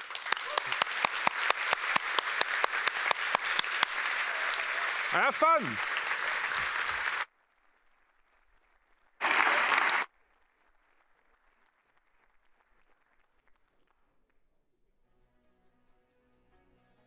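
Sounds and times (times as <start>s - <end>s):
audience applause: 0.0s - 7.3s, 9.2s - 10.1s.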